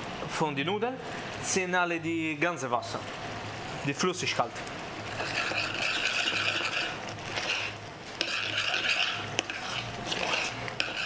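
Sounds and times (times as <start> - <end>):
spoon scraping metal saucepan: 5.1 - 11.0.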